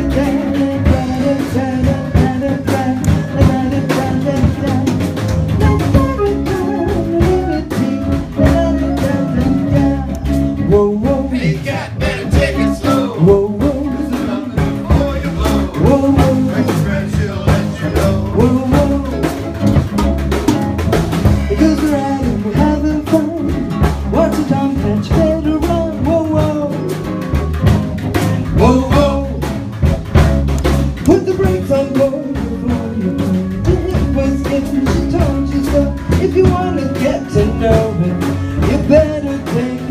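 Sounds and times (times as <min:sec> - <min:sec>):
person singing: 0:00.0 - 0:19.7, 0:21.2 - 0:27.5, 0:28.1 - 0:29.5, 0:31.0 - 0:39.9
bass: 0:00.0 - 0:39.9
drum kit: 0:00.0 - 0:39.9
guitar: 0:00.0 - 0:39.9.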